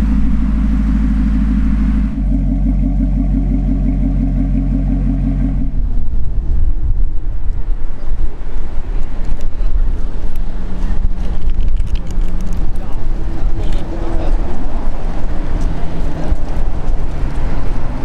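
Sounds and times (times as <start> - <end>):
car engine idling: 0.0 - 8.1
uneven low engine rumble: 0.0 - 18.0.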